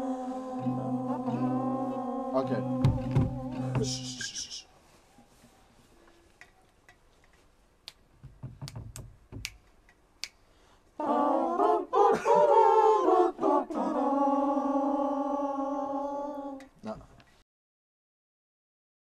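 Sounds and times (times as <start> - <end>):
voices singing loudly: 0.0 - 4.6, 11.0 - 16.8.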